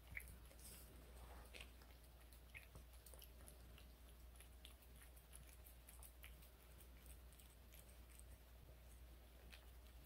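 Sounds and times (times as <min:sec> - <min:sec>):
cat licking and chewing: 0:00.0 - 0:10.0
low steady hum: 0:00.0 - 0:10.0.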